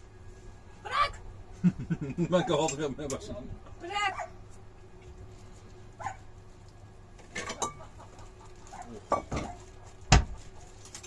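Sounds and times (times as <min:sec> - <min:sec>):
dishes and utensils clinking: 0:07.3 - 0:07.9.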